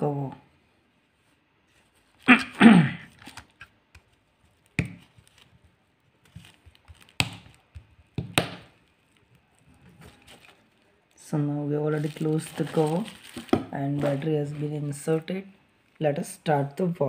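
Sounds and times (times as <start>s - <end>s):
plastic cover creaking: 2.1s - 11.2s, 11.9s - 14.7s.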